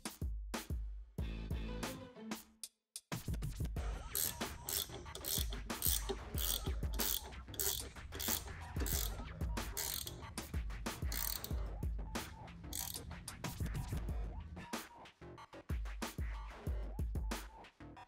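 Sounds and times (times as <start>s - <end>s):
socket ratchet clicking: 4.0s - 11.7s, 12.7s - 13.1s.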